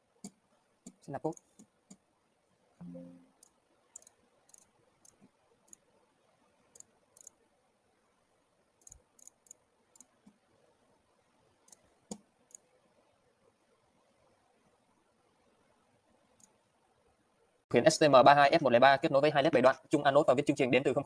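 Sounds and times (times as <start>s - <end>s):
computer mouse clicking: 3.4s - 5.9s, 6.7s - 7.4s, 8.8s - 10.4s, 11.6s - 12.7s, 16.4s - 16.6s.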